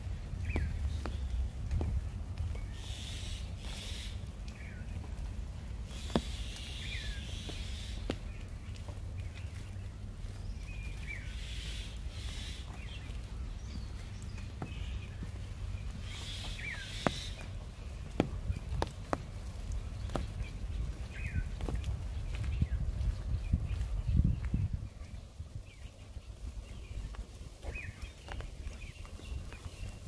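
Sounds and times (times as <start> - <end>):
birds chirping: 0.0 - 30.0
footsteps on wet brick: 0.0 - 30.0
short falling bird calls: 2.7 - 4.8, 5.9 - 8.4, 10.5 - 15.2, 16.0 - 17.5.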